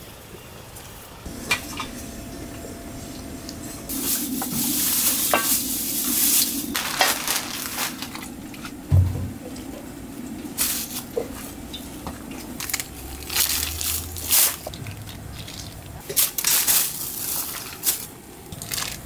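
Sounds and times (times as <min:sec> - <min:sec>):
chicken sizzling in hot oil: 0:01.2 - 0:09.0
dull thump: 0:08.9 - 0:09.4.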